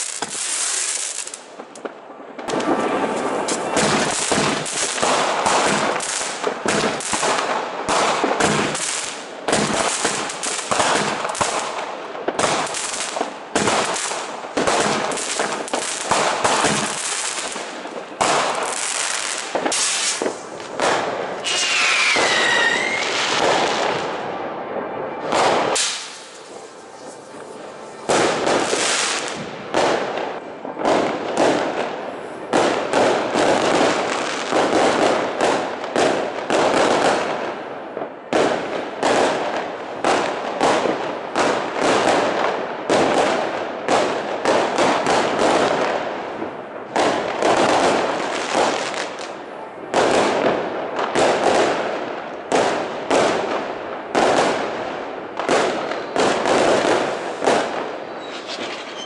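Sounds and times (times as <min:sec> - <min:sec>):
fireworks bangs: 0:00.0 - 0:59.0
fireworks crackling: 0:00.0 - 0:59.0.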